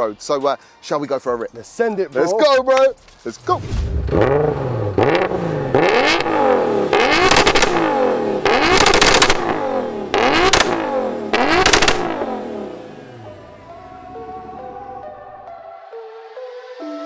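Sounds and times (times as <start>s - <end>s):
car engine revving: 3.5s - 13.6s.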